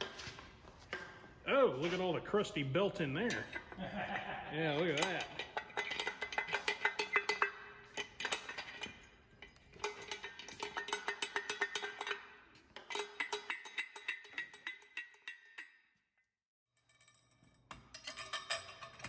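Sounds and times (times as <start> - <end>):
metal clutch clinking and rattling: 4.8 - 15.7, 16.8 - 19.0.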